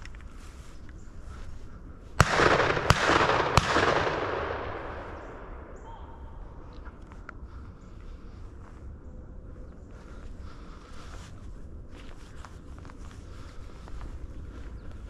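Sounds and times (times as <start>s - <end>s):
shotgun shots with echo: 2.2s - 6.4s.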